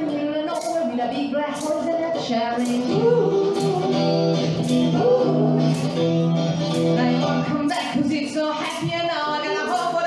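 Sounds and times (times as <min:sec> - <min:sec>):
women singing over a beat: 0:00.0 - 0:04.2, 0:06.9 - 0:10.0
electric guitar chords: 0:01.6 - 0:07.9.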